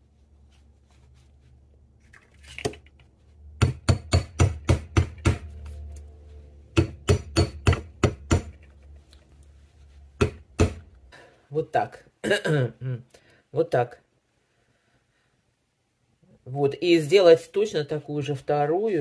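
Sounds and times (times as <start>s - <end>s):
hammer striking metal: 3.6s - 5.7s, 6.7s - 8.6s, 10.2s - 10.8s.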